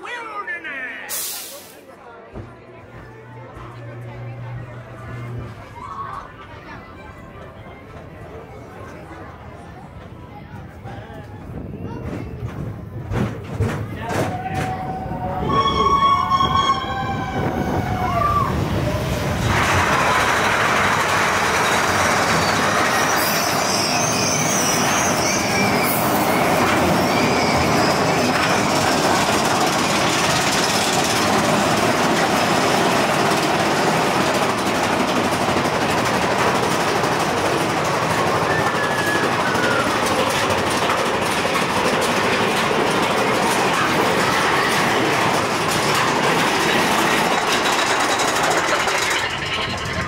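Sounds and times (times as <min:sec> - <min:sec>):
roller coaster rumbling on track: 0:00.0 - 0:50.0
faint high squeaks: 0:22.4 - 0:28.3.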